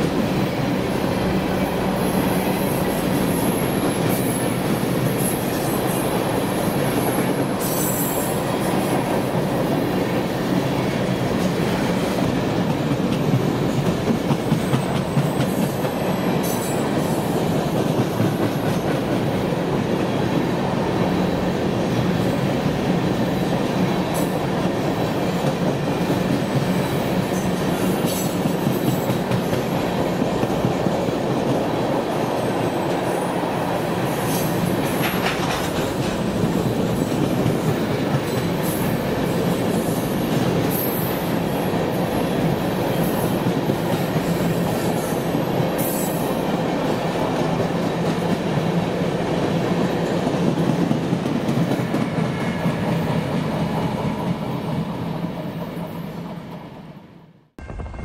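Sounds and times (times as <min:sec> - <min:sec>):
freight train rumbling: 0:00.0 - 0:57.0
clickety-clack over rail joints: 0:11.2 - 0:20.3, 0:24.1 - 0:31.8, 0:34.2 - 0:41.4, 0:42.4 - 0:54.6.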